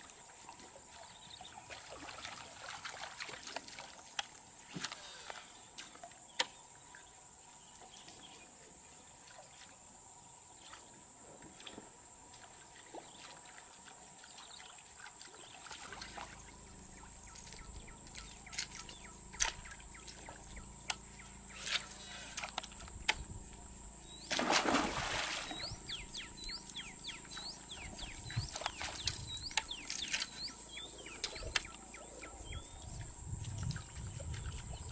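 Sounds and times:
low hum: 0:16.0 - 0:34.9
steady high whine: 0:16.4 - 0:32.9
fish splash: 0:24.3 - 0:25.7.

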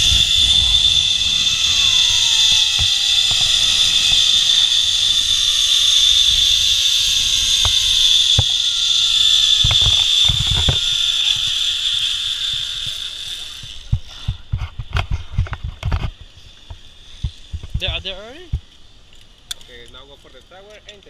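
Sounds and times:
low wind rumble: 0:00.0 - 0:11.1
zipline pulleys whirring on cable: 0:00.0 - 0:18.6.

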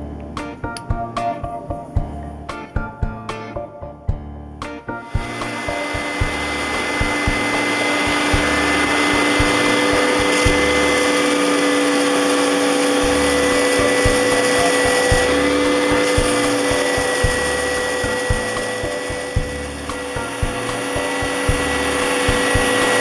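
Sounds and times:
belt sander sanding wood: 0:05.0 - 0:23.0.

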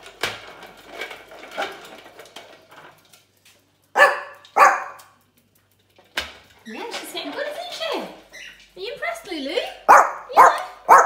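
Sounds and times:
plastic ball rolling on tiles: 0:00.0 - 0:09.9
small dog barking: 0:04.0 - 0:05.0, 0:09.9 - 0:11.0.

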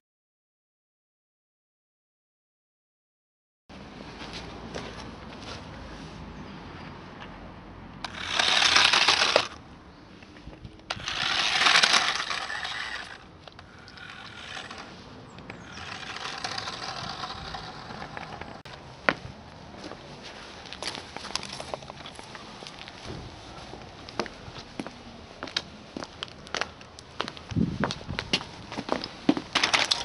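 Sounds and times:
toy truck electric motor whirring: 0:08.0 - 0:09.6, 0:10.8 - 0:18.6, 0:29.6 - 0:30.0.

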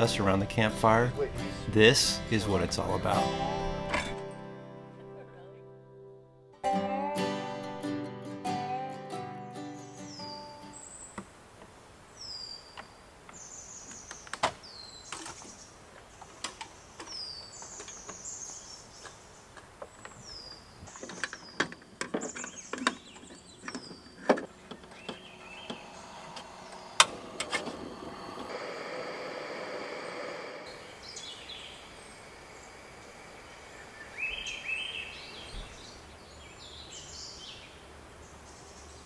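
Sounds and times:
steady hiss: 0:25.2 - 0:39.0
bird whistling calls: 0:33.4 - 0:36.0.

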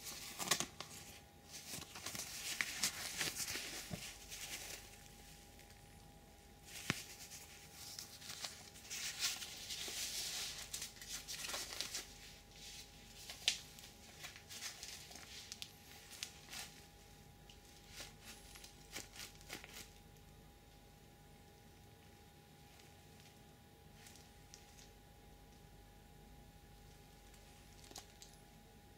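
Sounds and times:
gloves rustling and rubbing: 0:00.0 - 0:20.0.

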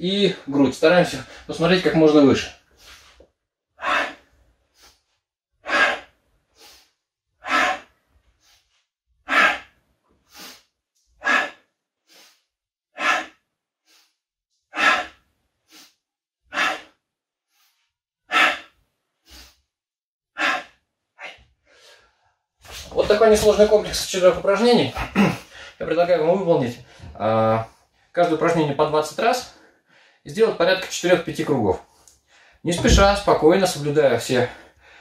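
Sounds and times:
man breathing hard: 0:03.8 - 0:05.0, 0:05.6 - 0:08.7, 0:09.3 - 0:12.4, 0:13.0 - 0:19.6, 0:20.4 - 0:22.2, 0:25.1 - 0:25.8, 0:32.2 - 0:32.6, 0:34.6 - 0:35.0.

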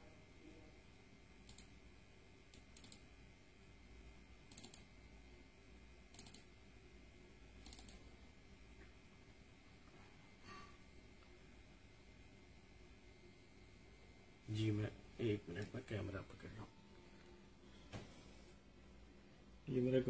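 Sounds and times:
low steady hum: 0:00.0 - 0:20.0
sharp computer clicks: 0:01.4 - 0:01.8, 0:02.5 - 0:03.1, 0:04.4 - 0:04.9, 0:06.0 - 0:06.6, 0:07.6 - 0:08.1.

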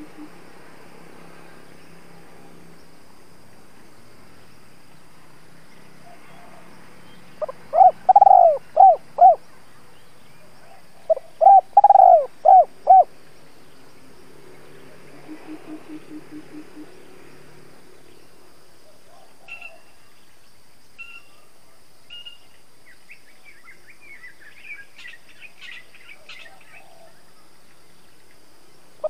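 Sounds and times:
dove cooing: 0:00.0 - 0:00.4, 0:07.4 - 0:09.4, 0:10.6 - 0:13.1, 0:15.1 - 0:16.9, 0:26.2 - 0:27.2.

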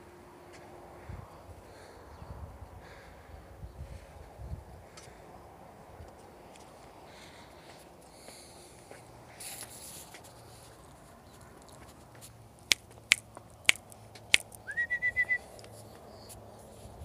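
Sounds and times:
fingers snapping: 0:12.6 - 0:14.6
person whistling a trill: 0:14.6 - 0:15.4.

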